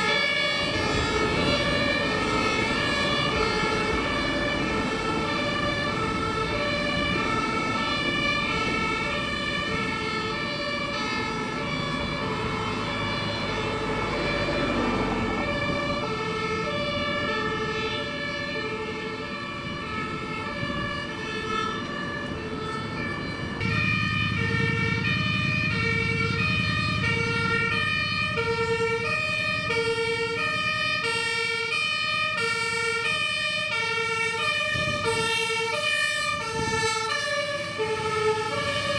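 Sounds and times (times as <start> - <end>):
fire truck engine rumble: 0.0 - 38.9
two-tone fire engine sirens: 0.0 - 38.9.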